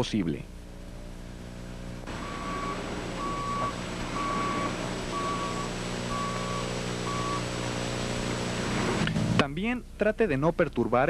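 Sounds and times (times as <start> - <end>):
diesel engine running: 0.0 - 9.6
reversing alarm beeps: 2.1 - 7.5.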